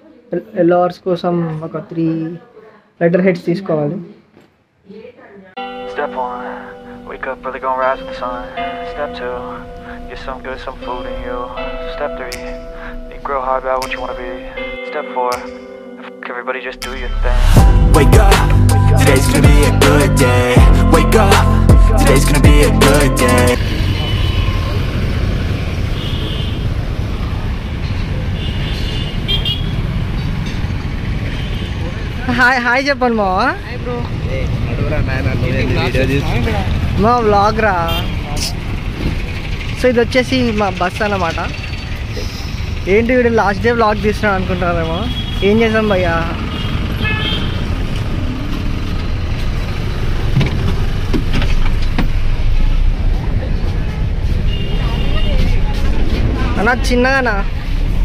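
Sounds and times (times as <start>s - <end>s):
street traffic rumble: 5.6s - 14.8s, 16.9s - 58.0s
vehicle horn toots: 26.0s - 26.7s, 28.4s - 29.8s, 37.8s - 38.5s, 46.6s - 47.7s, 54.4s - 55.6s
bus engine idling: 35.5s - 44.8s.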